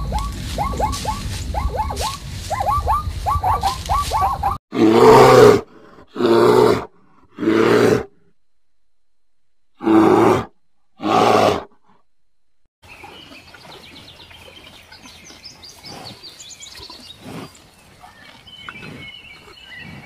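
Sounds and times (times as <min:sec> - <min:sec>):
zebra barking yelps: 0:00.0 - 0:04.6
bear growling roars: 0:04.7 - 0:08.3, 0:09.8 - 0:12.0.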